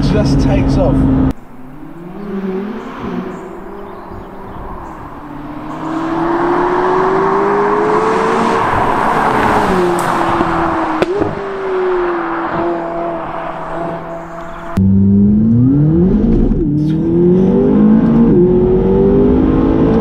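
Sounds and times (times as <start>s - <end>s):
sports car engine accelerating past: 1.6s - 20.0s
tyre and wind noise: 3.0s - 14.8s.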